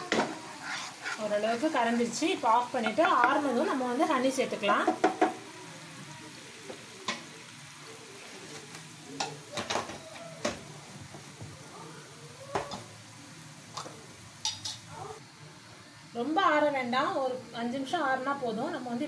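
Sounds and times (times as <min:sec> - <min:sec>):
syrup simmering in a pan: 0:00.1 - 0:14.6.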